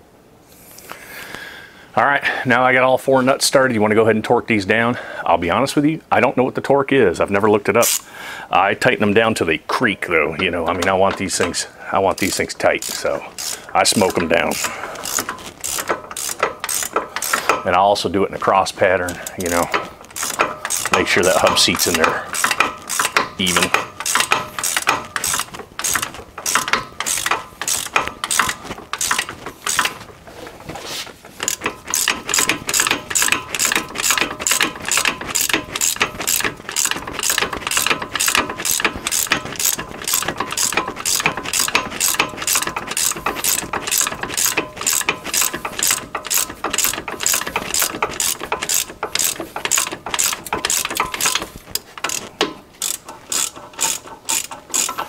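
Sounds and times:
hand ratchet clicking: 0:07.8 - 0:08.1, 0:10.4 - 0:30.1, 0:31.2 - 0:55.0.

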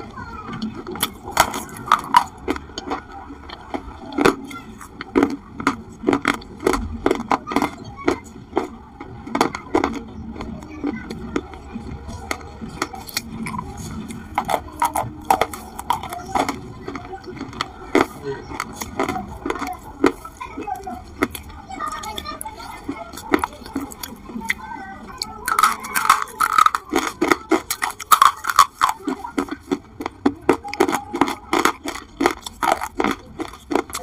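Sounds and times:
crisp crunching bites: 0:25.2 - 0:34.0.

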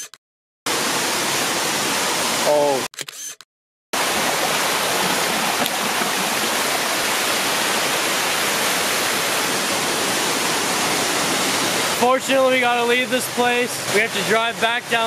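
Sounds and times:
water rushing over rocks: 0:04.0 - 0:15.0.

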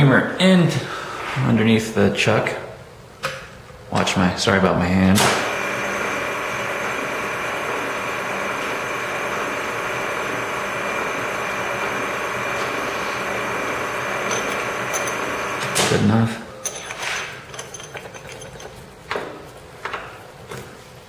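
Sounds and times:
milling machine motor whining: 0:05.5 - 0:15.8.

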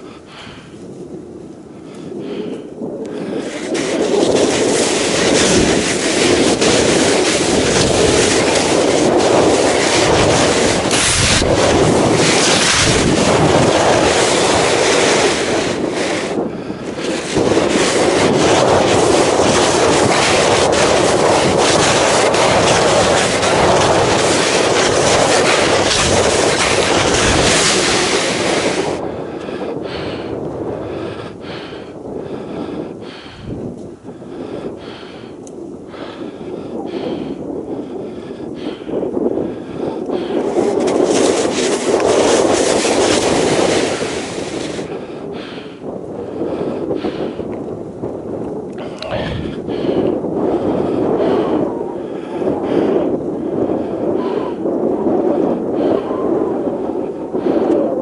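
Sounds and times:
wind rushing on microphone: 0:00.0 - 0:58.0
footsteps crunching in snow: 0:17.0 - 0:29.0, 0:40.4 - 0:44.9.

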